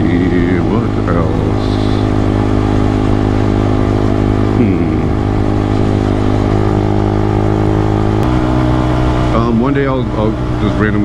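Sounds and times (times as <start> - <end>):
motorcycle engine cruising: 0.0 - 11.0.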